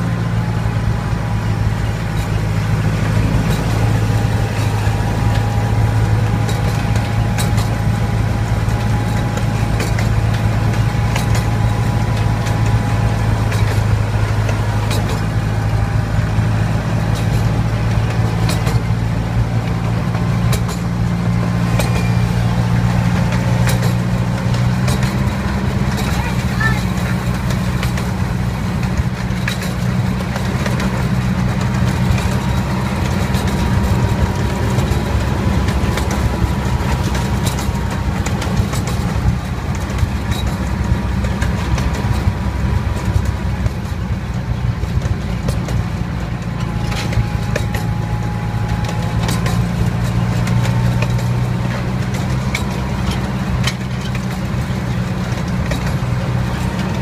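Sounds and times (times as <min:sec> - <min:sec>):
train engine humming: 0:00.0 - 0:57.0.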